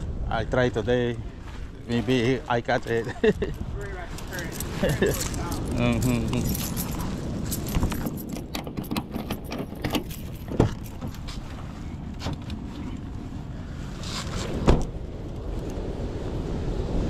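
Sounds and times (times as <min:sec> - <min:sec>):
car door clicks and rattles: 0:07.6 - 0:11.2
car door shutting with thump: 0:14.6 - 0:14.9.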